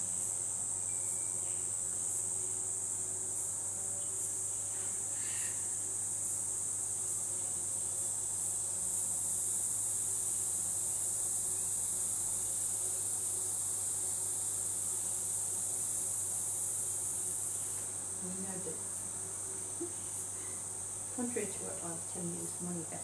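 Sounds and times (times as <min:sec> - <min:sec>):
insects shrilling: 0:00.1 - 0:07.2.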